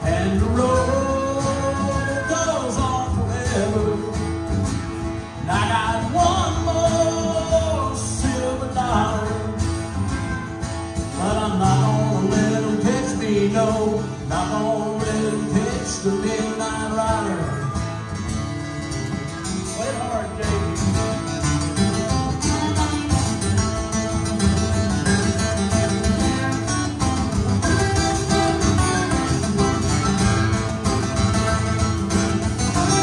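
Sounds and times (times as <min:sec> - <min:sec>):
acoustic guitars strumming: 0:00.0 - 0:33.0
harmonica lead: 0:17.2 - 0:33.0.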